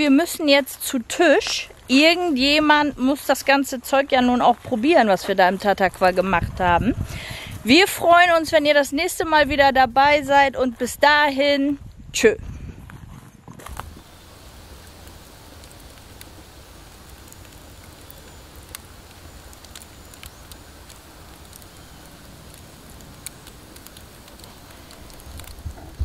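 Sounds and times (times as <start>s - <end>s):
burning logs crackling and popping: 0.0s - 11.9s, 13.6s - 26.0s
fire hissing: 6.9s - 7.9s, 13.6s - 26.0s.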